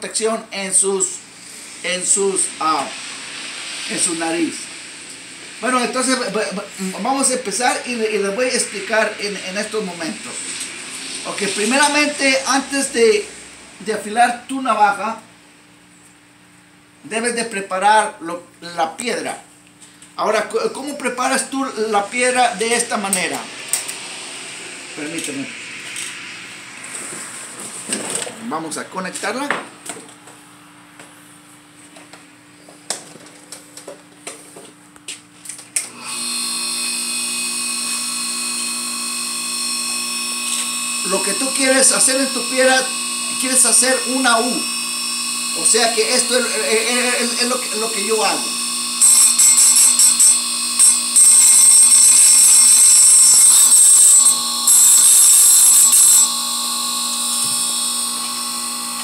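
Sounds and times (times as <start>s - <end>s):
grinding wheel motor whining: 35.9s - 59.0s.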